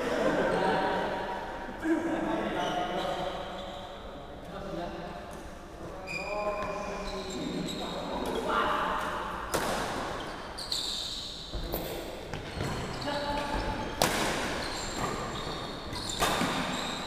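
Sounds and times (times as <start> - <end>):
voices in hall: 0.0 - 17.0
shoes squeaking on wooden floor: 6.0 - 8.4, 10.2 - 17.0
rackets hitting shuttlecock: 9.0 - 10.3, 13.4 - 15.3, 15.9 - 17.0.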